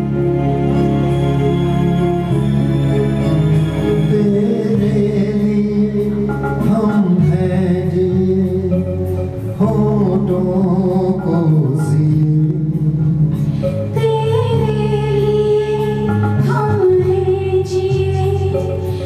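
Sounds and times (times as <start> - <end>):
amplified instrumental accompaniment: 0.0 - 19.0
man singing into microphone: 4.0 - 13.5.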